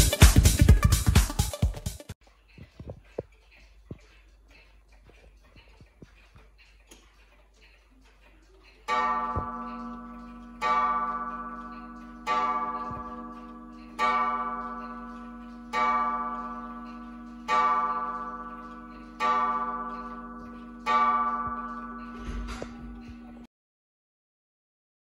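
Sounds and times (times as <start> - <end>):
wall clock gong striking: 8.9 - 23.5.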